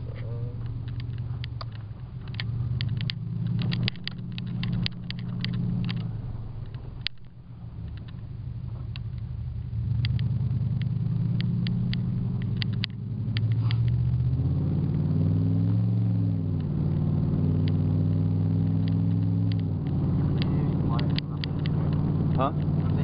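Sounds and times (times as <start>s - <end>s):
truck engine pulling hard: 0.0s - 23.0s.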